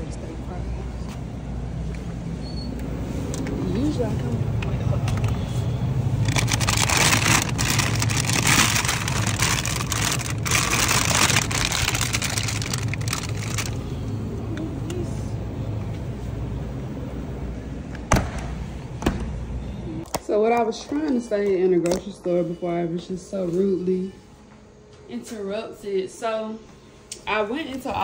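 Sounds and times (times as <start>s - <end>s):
steady low hum: 0.0s - 20.4s
plastic bag crinkling: 6.2s - 14.1s.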